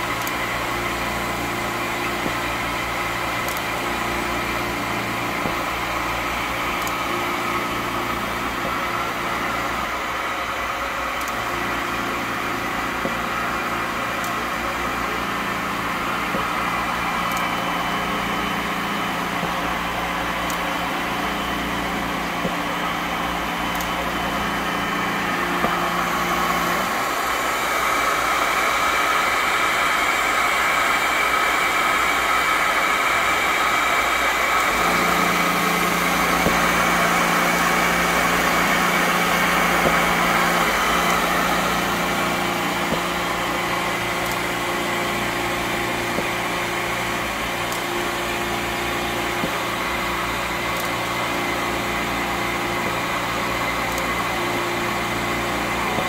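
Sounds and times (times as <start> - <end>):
machines whirring: 0.0 - 56.0.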